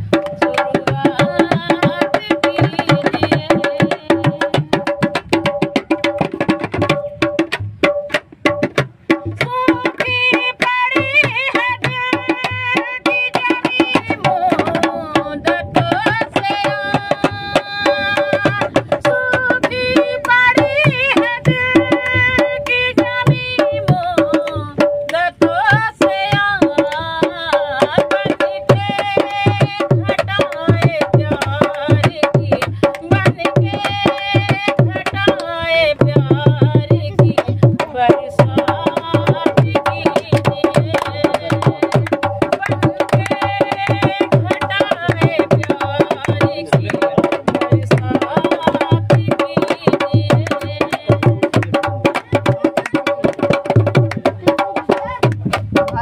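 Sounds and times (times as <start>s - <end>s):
woman singing: 0.0s - 7.2s, 9.1s - 56.0s
hand drum beat: 0.0s - 56.0s.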